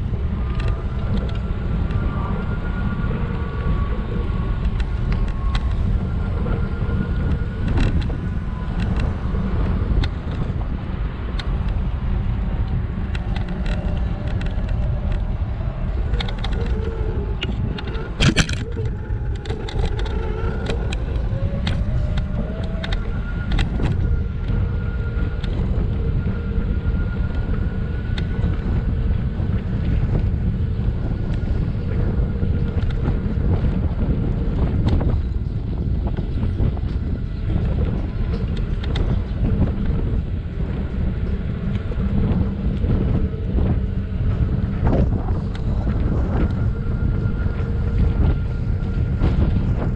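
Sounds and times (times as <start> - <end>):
faint steady whine: 0.0 - 49.9
wind on microphone: 0.0 - 49.9
scooter rattling over bumps: 13.2 - 25.0.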